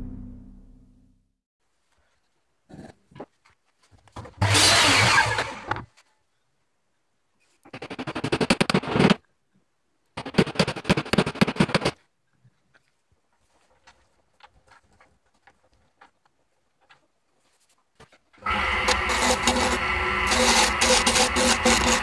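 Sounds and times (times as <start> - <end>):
mitre saw cutting wood: 4.4 - 5.7, 18.4 - 22.0.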